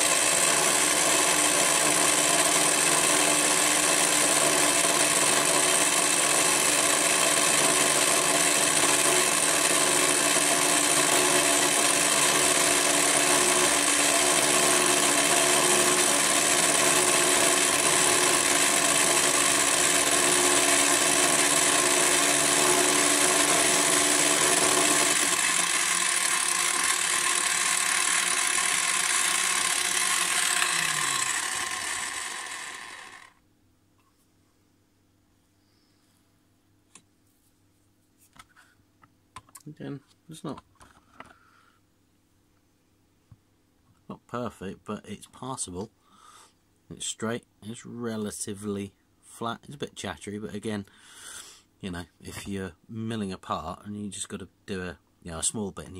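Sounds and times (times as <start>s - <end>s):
end mill cutting metal: 0.0s - 33.3s
drill motor running: 0.0s - 33.4s.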